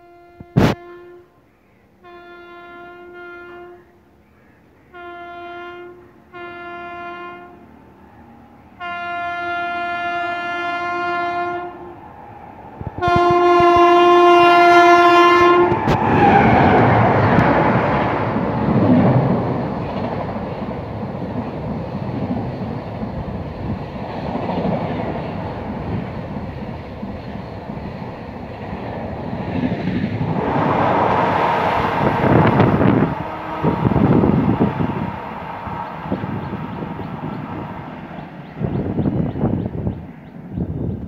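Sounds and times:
train horn blasts: 0.0s - 4.1s, 4.9s - 12.1s, 12.9s - 17.0s, 30.4s - 38.2s
train passing with wheel noise: 0.0s - 41.0s.

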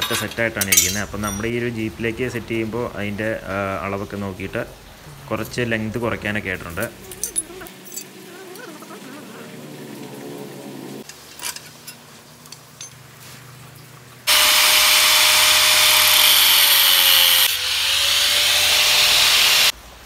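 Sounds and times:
angle grinder cutting steel: 14.3s - 19.7s.

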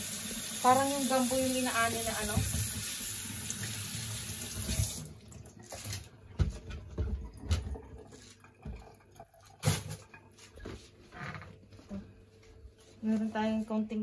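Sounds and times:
tap running into metal sink: 2.0s - 3.0s.

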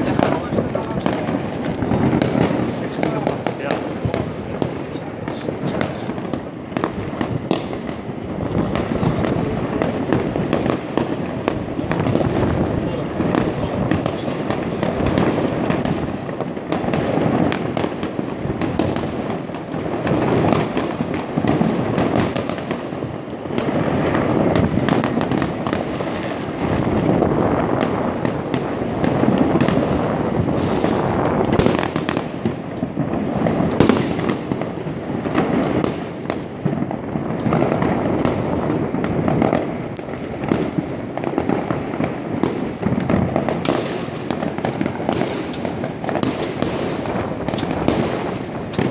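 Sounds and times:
fireworks banging and crackling: 0.0s - 48.9s.

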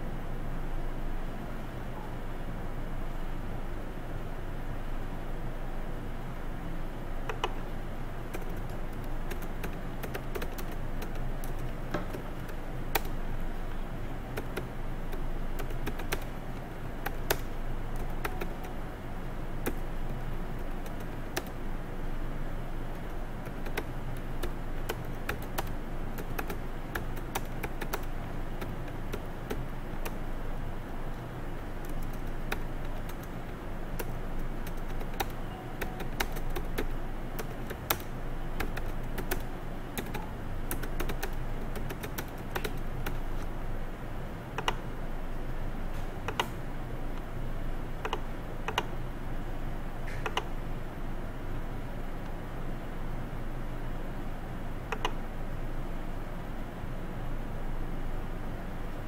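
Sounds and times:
typing on computer keyboard: 8.3s - 13.2s, 14.3s - 18.8s, 19.6s - 21.6s, 22.9s - 30.2s, 31.6s - 43.5s, 44.6s - 44.8s, 48.0s - 49.0s.

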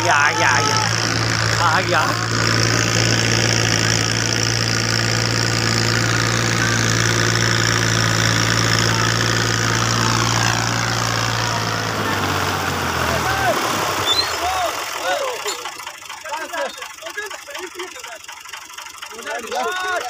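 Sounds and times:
tractor diesel engine droning: 0.0s - 20.0s.

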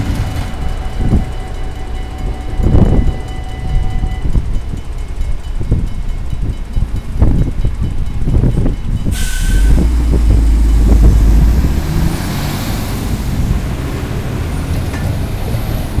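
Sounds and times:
air hiss: 9.1s - 9.8s
truck diesel engine passing: 9.2s - 16.0s.

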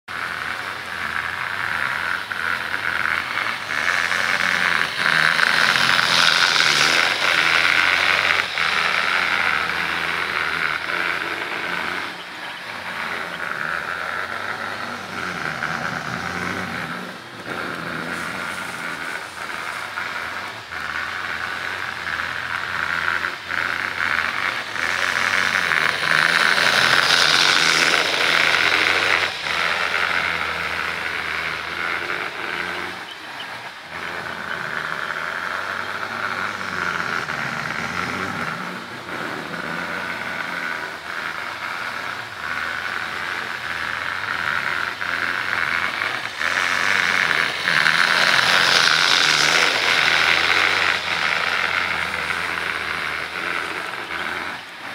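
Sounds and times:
model train motor humming: 0.0s - 54.9s
wheels clicking over rails: 0.1s - 54.9s.

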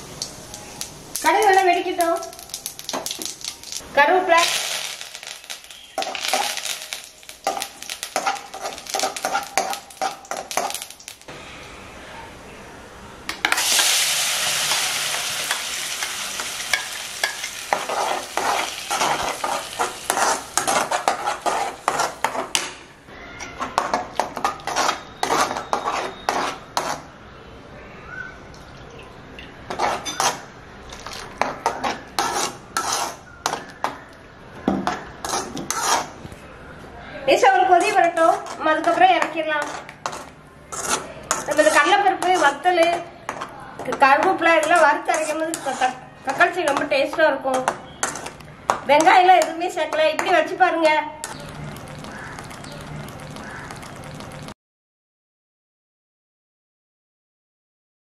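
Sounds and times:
seeds crackling in hot oil: 0.0s - 11.3s, 13.5s - 22.6s, 51.2s - 54.6s
loud sizzle: 0.0s - 11.4s, 13.4s - 22.3s
spoon scraping metal pan: 5.4s - 10.8s, 14.7s - 22.7s, 23.4s - 27.1s, 29.7s - 33.7s, 34.9s - 36.2s, 37.6s - 48.4s.

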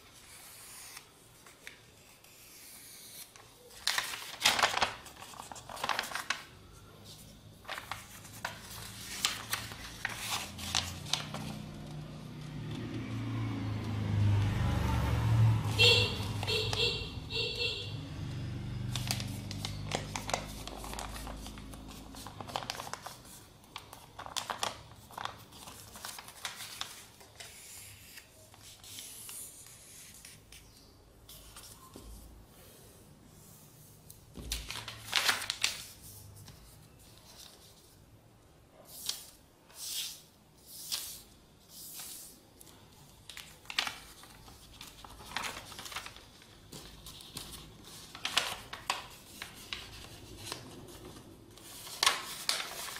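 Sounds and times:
paper folds creased swishes: 3.0s - 11.7s, 43.3s - 52.9s
paper crinkling and rustling: 3.2s - 12.0s, 18.8s - 29.4s, 34.4s - 38.0s, 41.9s - 52.9s.

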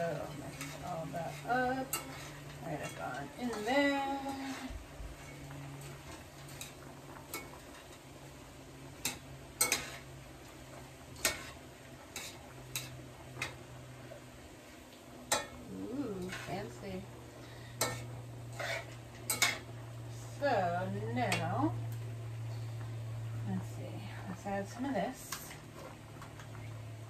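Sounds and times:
metal spatula scraping skillet: 0.0s - 8.1s, 9.0s - 10.2s, 11.2s - 13.6s, 15.2s - 19.8s
low sizzle: 0.0s - 27.0s.

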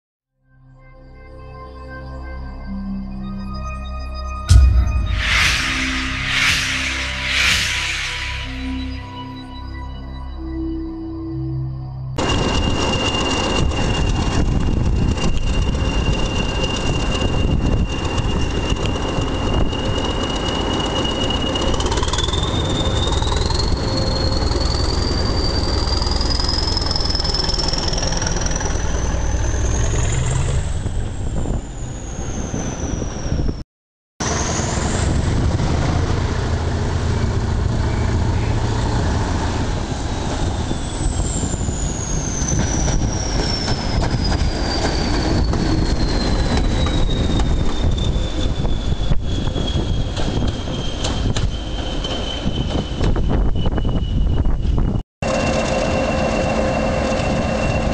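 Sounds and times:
turbocharger whistle: 2.4s - 33.6s, 40.1s - 57.9s
diesel locomotive engine rumble: 34.2s - 57.9s.

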